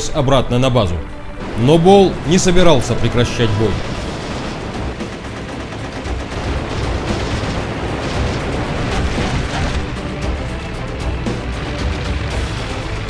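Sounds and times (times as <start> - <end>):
explosions rumbling: 1.4 - 10.6
gunfire: 3.4 - 10.5.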